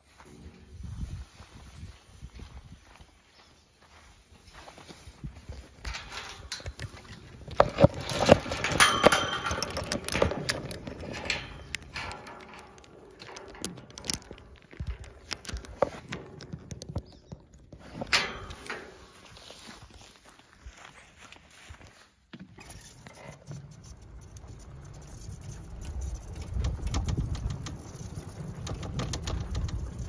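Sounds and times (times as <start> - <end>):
metal gate rattling and clanking: 5.8 - 19.5, 22.9 - 30.0
short metallic ring: 7.7 - 12.6, 18.1 - 19.2.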